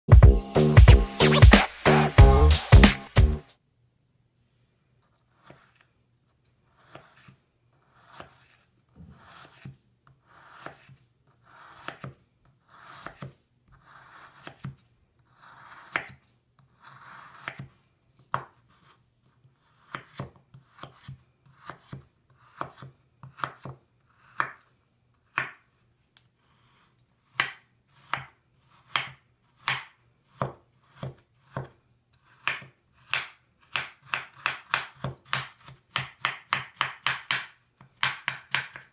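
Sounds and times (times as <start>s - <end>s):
knife slicing soft bar: 6.8s - 7.4s, 8.0s - 14.8s, 15.4s - 16.2s, 16.8s - 17.7s.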